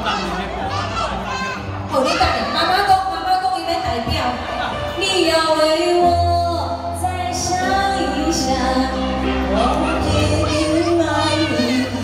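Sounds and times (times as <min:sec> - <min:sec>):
karaoke backing track: 0:00.0 - 0:12.0
woman singing a pop ballad: 0:05.0 - 0:12.0.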